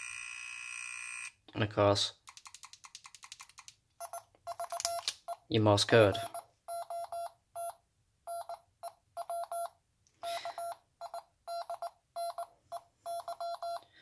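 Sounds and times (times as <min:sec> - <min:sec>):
morse code beeps: 0:04.0 - 0:13.8.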